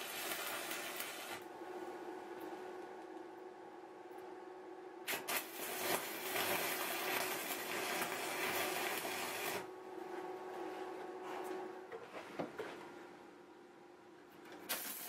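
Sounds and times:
welding arc crackling and sizzling: 0.0 - 1.4, 5.0 - 9.7, 14.6 - 15.0
steady hum: 1.2 - 14.6.

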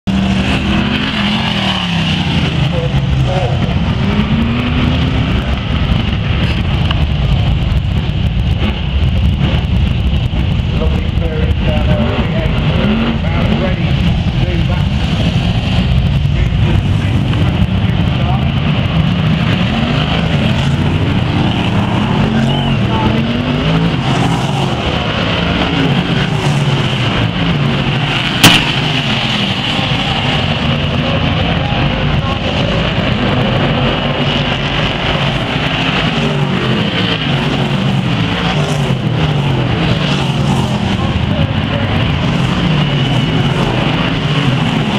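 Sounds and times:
racing car engines running: 0.0 - 44.9
sharp crack: 28.3 - 29.4.

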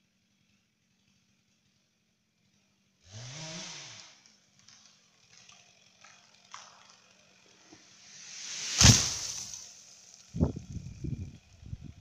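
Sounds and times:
chainsaw revving: 3.0 - 10.7
wood cracking and snapping: 4.6 - 7.2.

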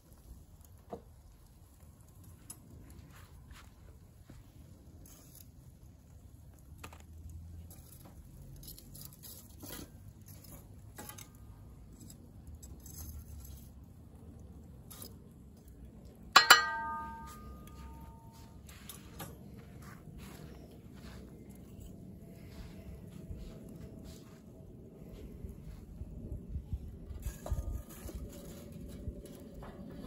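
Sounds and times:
tongs clinking charcoal: 1.6 - 19.4
loud metallic clang: 16.4 - 18.3.

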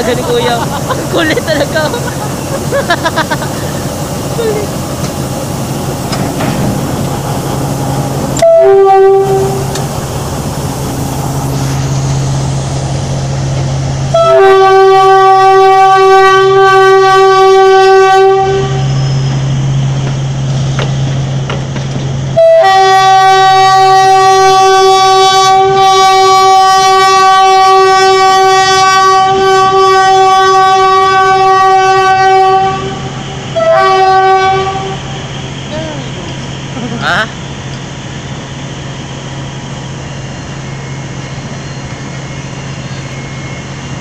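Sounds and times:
low engine drone: 0.0 - 15.8
train horn blasts: 8.3 - 9.9, 14.1 - 19.2, 22.3 - 35.2.

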